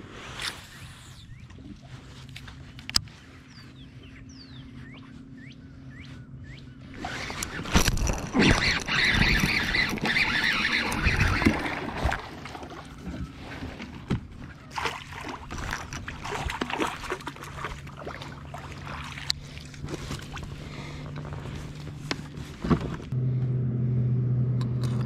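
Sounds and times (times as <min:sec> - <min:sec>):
clicks and knocks of fishing gear: 0:07.2 - 0:12.3, 0:15.4 - 0:17.8.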